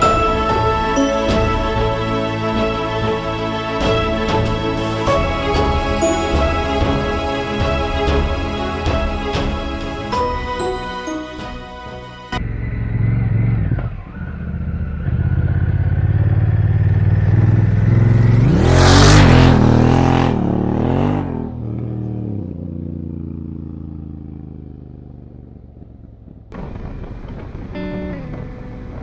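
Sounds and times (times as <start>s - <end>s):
motorcycle engine accelerating: 12.4s - 29.0s.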